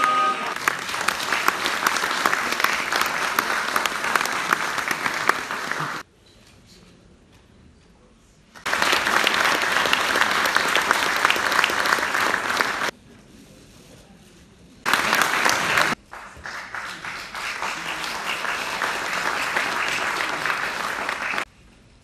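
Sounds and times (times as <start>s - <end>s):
audience applauding: 0.0s - 6.0s, 8.6s - 12.9s, 14.8s - 21.5s.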